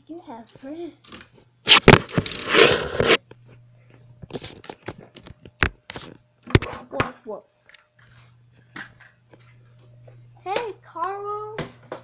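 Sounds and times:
phone handling scraping and rustling: 1.7 - 3.2.

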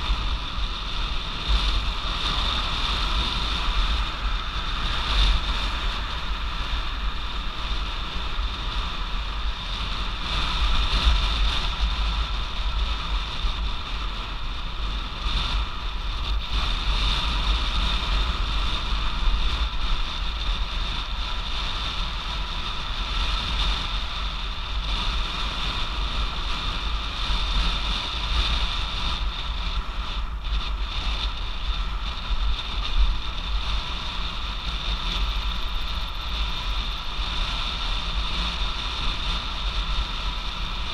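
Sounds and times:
constant high hum: 0.0 - 40.9
wind buffeting microphone: 0.0 - 40.9.

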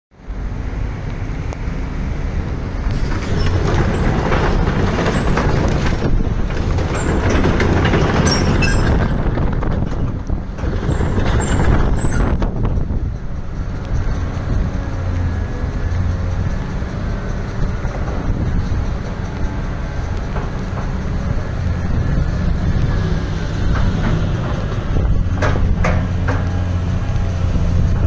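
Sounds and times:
excavator diesel engine under load: 0.2 - 28.0
high squeaks: 2.9 - 9.4, 10.8 - 12.4.

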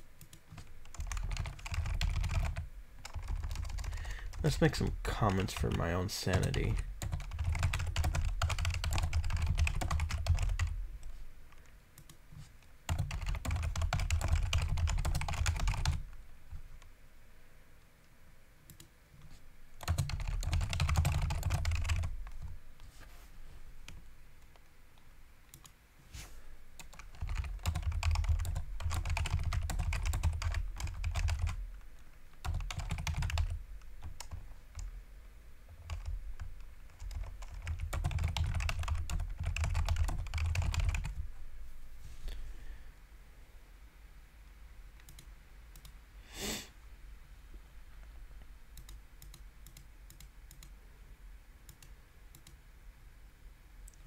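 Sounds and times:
typing on a computer keyboard: 0.2 - 10.8, 12.9 - 16.0, 18.7 - 22.5, 25.5 - 25.7, 26.8 - 31.6, 32.4 - 34.9, 35.7 - 41.2, 45.0 - 46.0, 48.8 - 50.7, 51.7 - 52.6.

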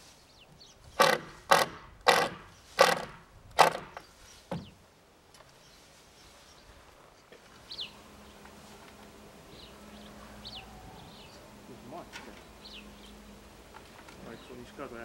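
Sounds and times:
cordless drill driving screws: 1.0 - 4.0.

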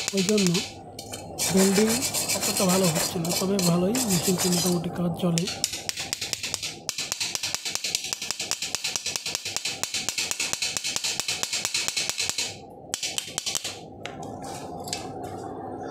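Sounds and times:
hand tool chipping weld slag: 0.0 - 0.7
scattered taps: 5.4 - 13.7.

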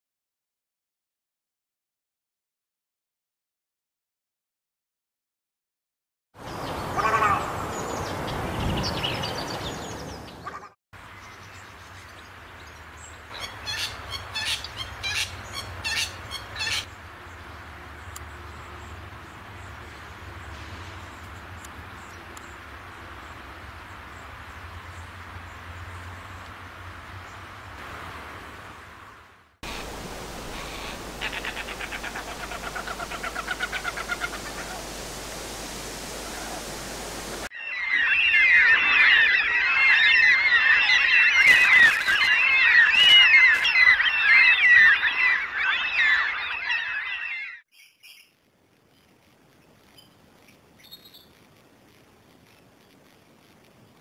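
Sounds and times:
bird harsh rasping calls: 7.0 - 7.7, 13.3 - 16.9, 30.6 - 34.8
steady hiss: 29.6 - 37.5.

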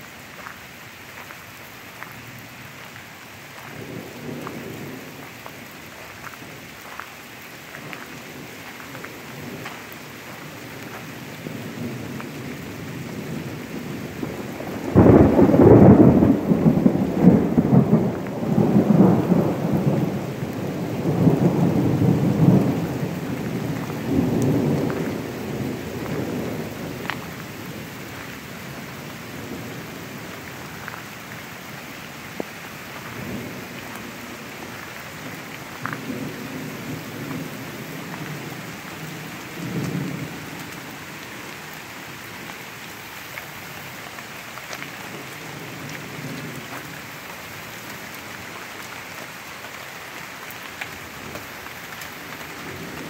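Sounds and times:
steady rain: 0.0 - 53.0
thunder rumbling: 11.3 - 30.9.

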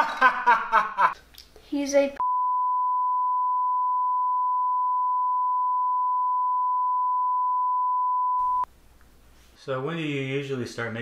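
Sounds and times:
censor bleep tone: 2.2 - 8.7.

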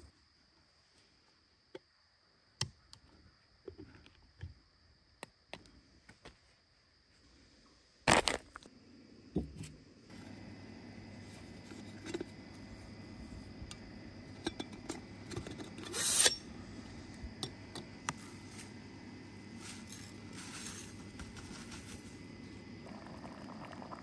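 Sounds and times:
faint low hum: 8.6 - 24.0.

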